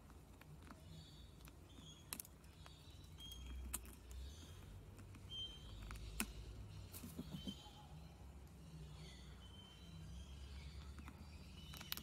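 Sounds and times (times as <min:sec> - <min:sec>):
beak cracking seeds: 0:00.0 - 0:07.6, 0:10.8 - 0:12.0
faint high bird chirps: 0:00.8 - 0:12.0.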